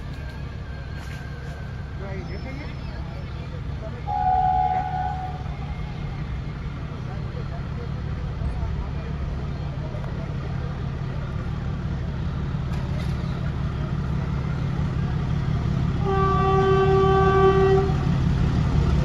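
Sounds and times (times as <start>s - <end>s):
diesel locomotive engine rumble: 0.0s - 19.0s
locomotive horn: 4.1s - 5.6s, 16.0s - 18.1s.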